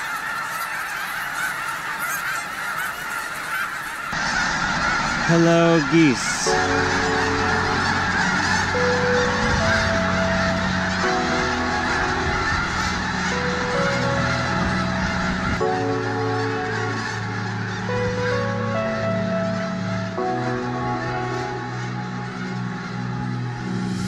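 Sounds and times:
geese honking: 0.0 - 24.0
soft music with held chords: 5.3 - 24.0.

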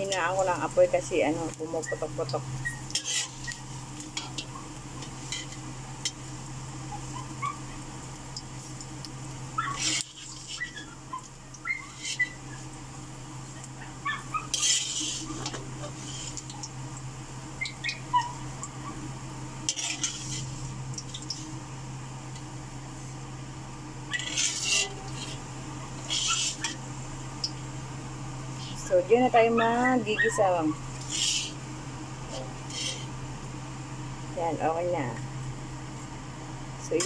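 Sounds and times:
steady low hum: 0.0 - 37.0
metal spatula scraping a wok: 2.8 - 3.5, 4.1 - 5.6, 9.8 - 10.7, 11.9 - 12.2, 14.5 - 16.4, 19.7 - 20.7, 24.1 - 26.8, 31.0 - 31.6, 32.3 - 33.1.

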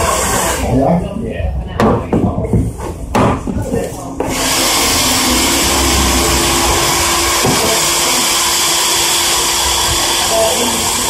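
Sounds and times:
electric fan motor whirring: 4.2 - 11.0.

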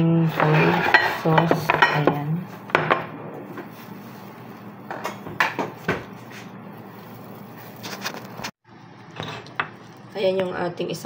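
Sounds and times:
ceramic bowls clinking: 0.3 - 6.2.

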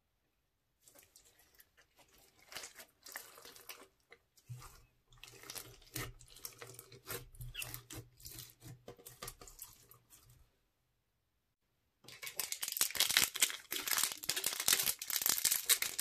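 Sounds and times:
slime squelching: 0.8 - 10.6, 12.0 - 16.0.

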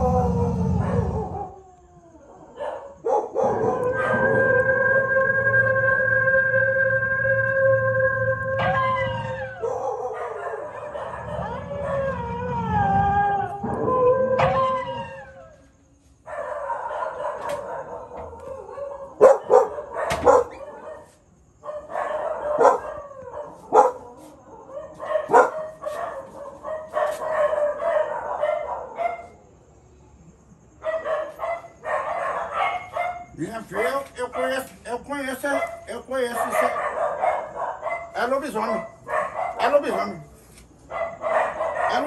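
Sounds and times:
wolf howling through loudspeaker: 0.0 - 2.6, 3.3 - 15.7, 35.5 - 38.9, 41.5 - 42.0
sharp dog barks: 2.6 - 4.2, 19.2 - 24.0, 24.8 - 29.3, 30.8 - 33.3, 35.5 - 40.1, 40.9 - 42.0.

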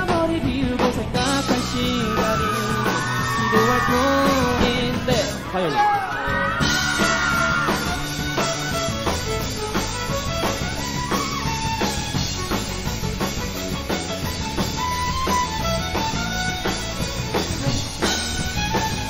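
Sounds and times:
bass: 0.0 - 19.0
drum kit beat: 0.0 - 19.0
electric guitar: 0.0 - 19.0
violin lead melody: 6.7 - 19.0.

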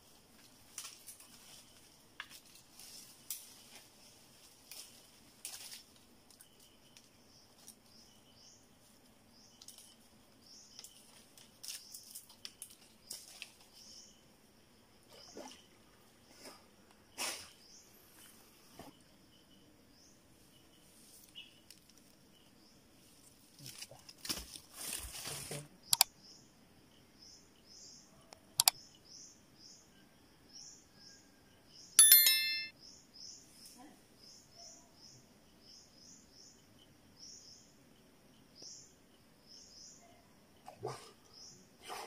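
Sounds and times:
short high chirps: 32.0 - 32.7.

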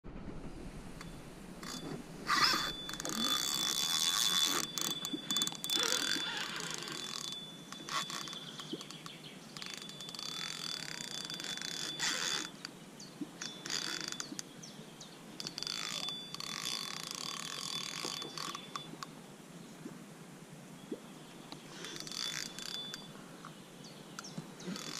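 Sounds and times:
fishing reel drag buzzing: 1.0 - 9.0, 9.6 - 12.7, 13.4 - 14.4, 15.4 - 19.0, 21.7 - 23.2, 24.6 - 24.9.

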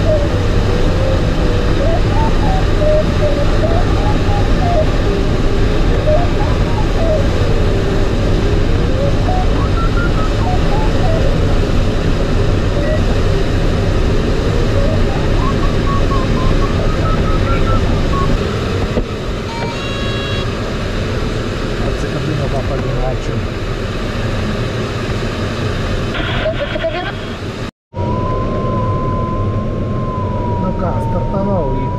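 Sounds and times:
variometer tone sliding: 0.0 - 18.4
airflow rush in cockpit: 0.0 - 31.3
short electronic beep: 9.2 - 11.4, 14.8 - 18.4.

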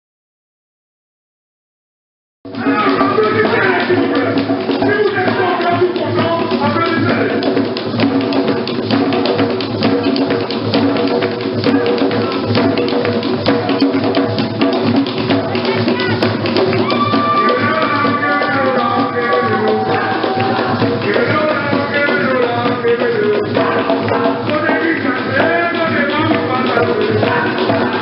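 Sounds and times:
hand drums playing rapidly: 2.5 - 28.0
other percussion: 2.5 - 28.0
people singing: 15.5 - 28.0.

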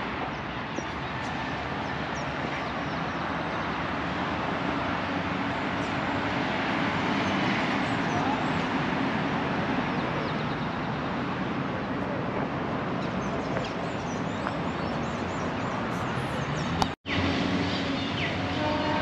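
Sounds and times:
traffic noise: 0.0 - 19.0
birds chirping: 9.6 - 12.2, 12.9 - 19.0.

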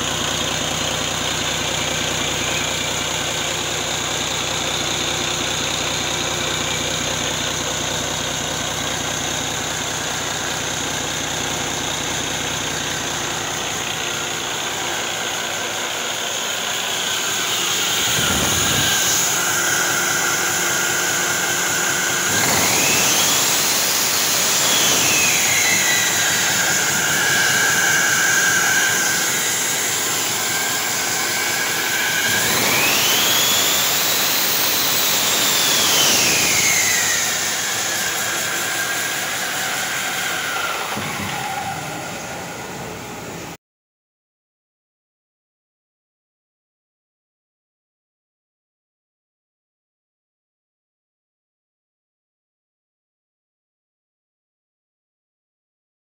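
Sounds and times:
diesel engine idling: 0.0 - 22.9, 23.8 - 34.1, 36.9 - 43.6
diesel engine revving: 0.0 - 43.6
turbocharger whine: 0.0 - 43.6.

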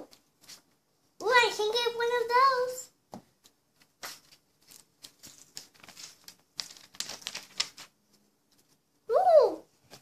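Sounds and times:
magazine pages crackling: 3.8 - 8.8.

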